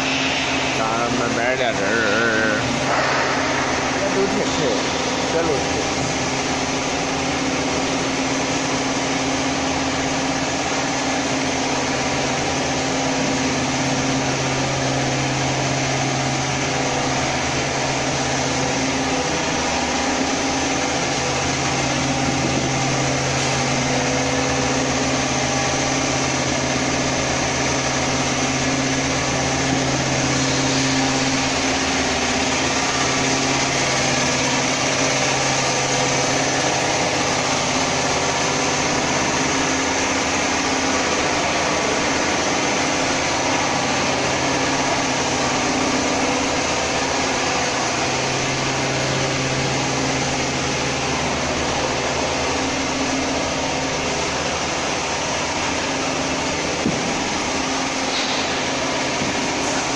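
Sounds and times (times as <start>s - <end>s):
machinery hiss: 0.0s - 8.6s
machinery humming: 0.0s - 59.9s.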